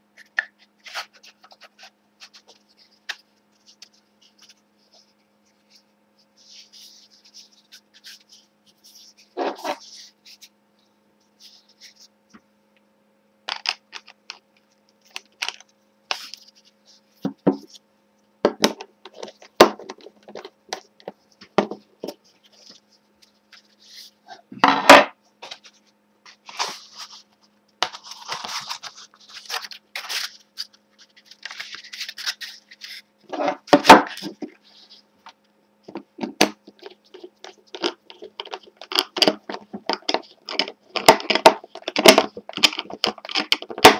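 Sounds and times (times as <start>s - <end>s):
rubbing and scraping: 0.2s - 10.6s, 25.4s - 35.0s.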